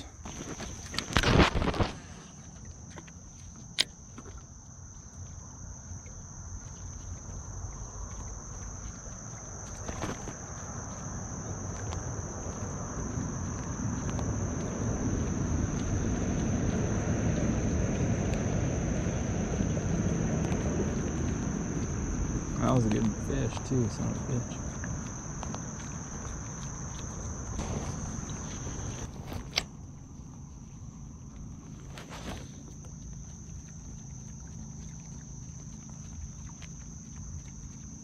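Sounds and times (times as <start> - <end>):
insects chorus ringing: 0.0 - 38.0
low rushing noise: 11.6 - 30.9.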